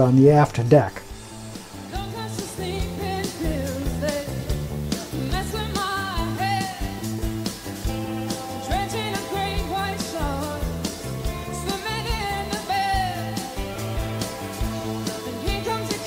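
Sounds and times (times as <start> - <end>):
bass notes: 0.0 - 16.0
steady drum beat: 1.1 - 16.0
person singing: 1.9 - 7.1, 8.3 - 13.7, 15.3 - 16.0.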